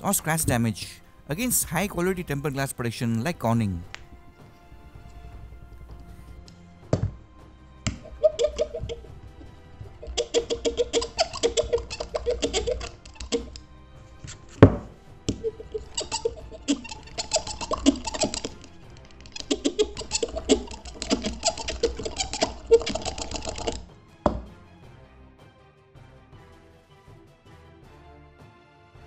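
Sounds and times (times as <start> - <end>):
music: 0.0 - 29.0
loud knock: 14.6 - 15.0, 24.3 - 24.6.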